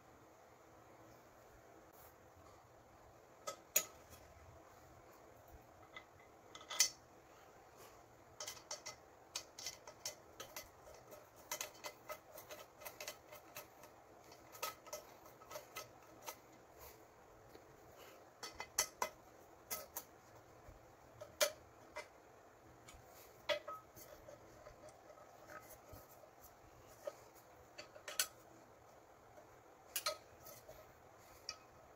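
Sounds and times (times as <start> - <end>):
screwdriver clicking on pan handles: 8.4 - 16.5.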